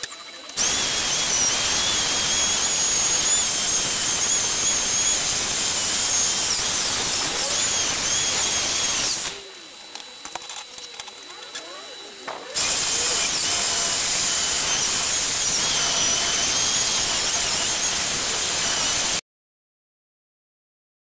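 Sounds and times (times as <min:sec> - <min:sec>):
rotary tool motor whine: 0:00.0 - 0:19.2
wire brush scrubbing metal: 0:00.6 - 0:09.4, 0:12.6 - 0:19.2.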